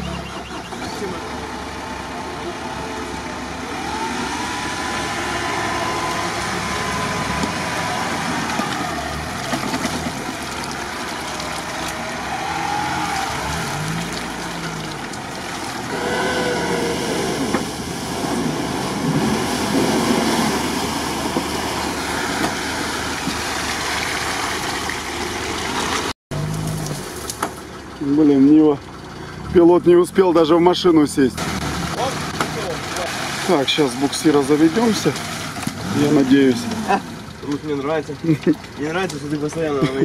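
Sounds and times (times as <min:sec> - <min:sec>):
suv engine revving: 0:00.0 - 0:39.7
tyres churning mud and splashing: 0:00.0 - 0:40.0.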